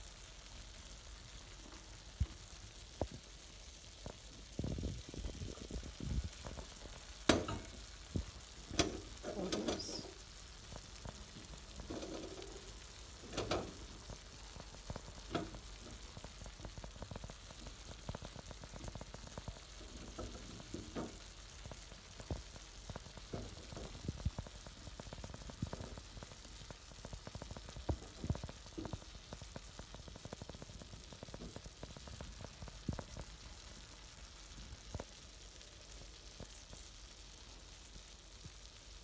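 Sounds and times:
food sizzling in a pan: 0:00.0 - 0:39.0
sharp clicks and soft knocks: 0:04.0 - 0:33.4.

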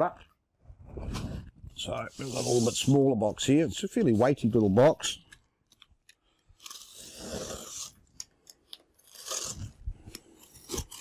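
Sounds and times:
utility knife cutting packing tape: 0:06.6 - 0:08.0, 0:09.0 - 0:11.0.

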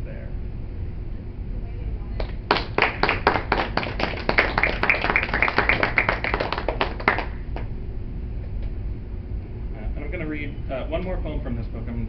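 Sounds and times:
audience applauding: 0:02.2 - 0:07.6.

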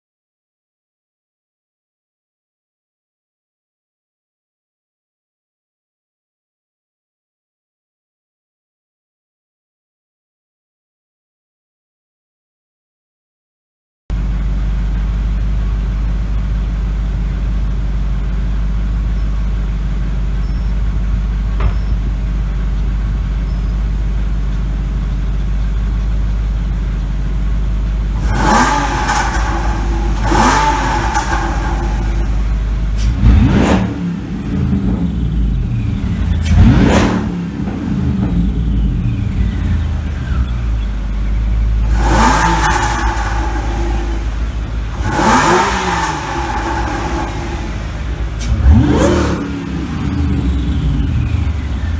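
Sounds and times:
car engines idling: 0:14.1 - 0:51.9
engine revving: 0:28.1 - 0:51.9.

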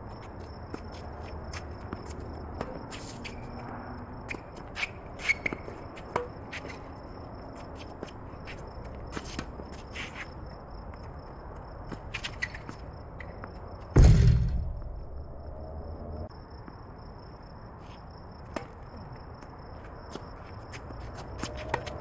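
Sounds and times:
loud thump: 0:14.0 - 0:15.3
footsteps on hard court: 0:19.4 - 0:22.0.

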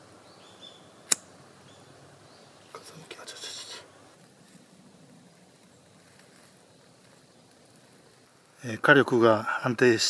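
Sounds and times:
lighter flint wheel clicks: 0:01.0 - 0:01.3
lighter hiss: 0:01.0 - 0:01.6, 0:03.3 - 0:08.7.

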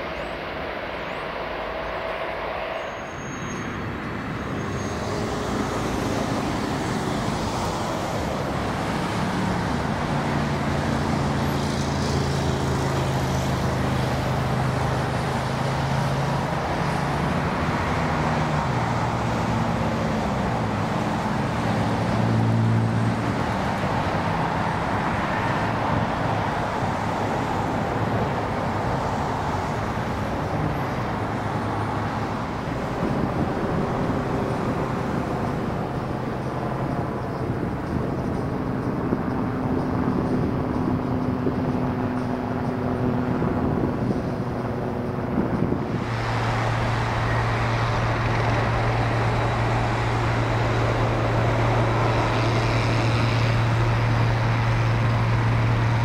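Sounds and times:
jet airliner rolling on runway: 0:00.0 - 0:56.0
jet engines droning: 0:00.0 - 0:56.0.

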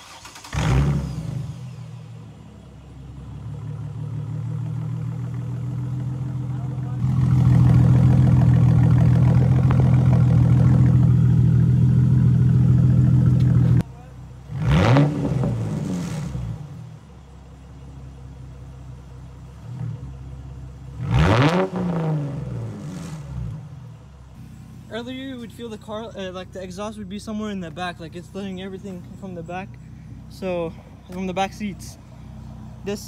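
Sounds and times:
engine revving: 0:00.0 - 0:02.2, 0:03.4 - 0:13.8, 0:14.5 - 0:16.9, 0:20.9 - 0:23.8
loud car engine exhaust: 0:00.0 - 0:33.0.

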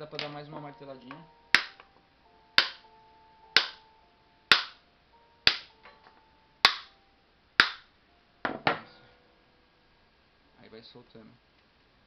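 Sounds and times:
hammer knocking on coconut shell: 0:01.6 - 0:01.8, 0:02.6 - 0:02.8, 0:03.6 - 0:03.8, 0:04.5 - 0:04.8, 0:05.5 - 0:05.7, 0:06.6 - 0:06.9.

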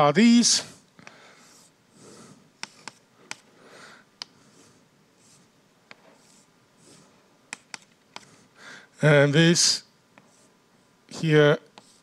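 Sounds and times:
chalk scratching on blackboard: 0:01.4 - 0:03.0, 0:04.4 - 0:08.4, 0:11.8 - 0:12.0
chalk tapping on blackboard: 0:02.6 - 0:03.4, 0:05.2 - 0:08.3, 0:11.7 - 0:12.0.

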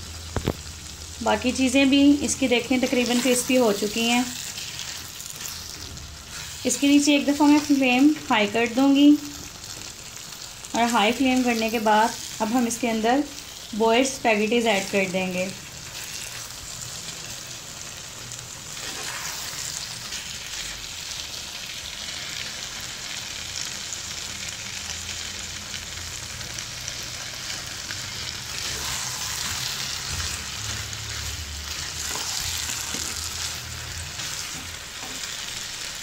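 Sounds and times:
food sizzling in a frying pan: 0:00.0 - 0:36.0
spatula scraping pan: 0:02.8 - 0:07.8, 0:18.8 - 0:20.2, 0:28.5 - 0:35.5.

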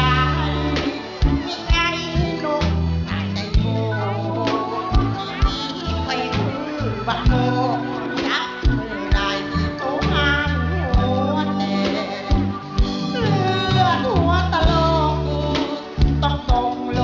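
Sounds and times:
bass notes: 0:00.0 - 0:17.0
man singing into a microphone: 0:00.0 - 0:17.0.

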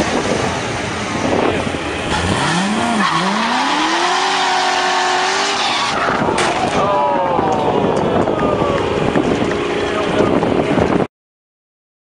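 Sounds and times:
car engine revving: 0:00.0 - 0:06.7.

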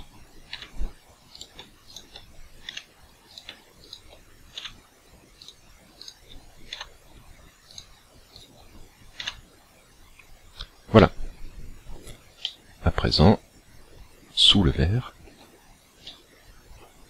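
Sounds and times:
computer mouse clicks: 0:00.0 - 0:04.8, 0:05.4 - 0:06.9, 0:07.6 - 0:09.5.

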